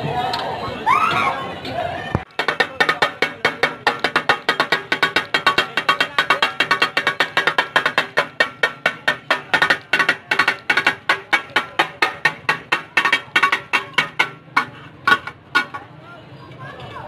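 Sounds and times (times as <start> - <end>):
metal spatulas clanging on griddle: 2.3 - 15.9.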